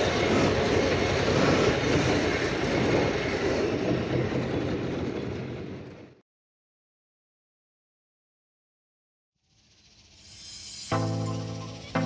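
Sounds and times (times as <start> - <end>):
road and wind noise: 0.0 - 6.2.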